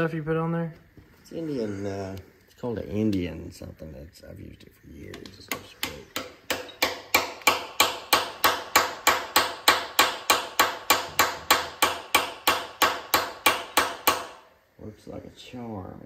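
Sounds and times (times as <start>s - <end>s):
hammer tapping: 5.1s - 14.4s.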